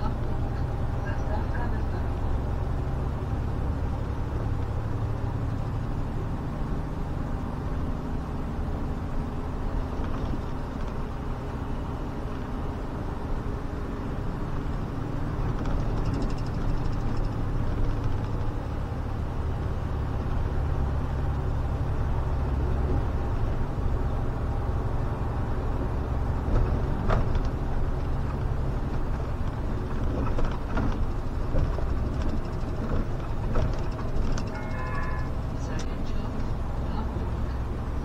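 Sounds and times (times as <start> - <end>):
bus engine and road drone: 0.0 - 38.0.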